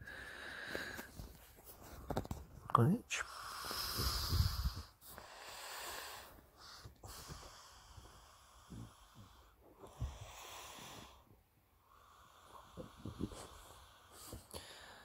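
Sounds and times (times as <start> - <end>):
soft rustles and knocks: 1.0 - 2.7
dog breathing noisily with snorts: 3.2 - 11.2.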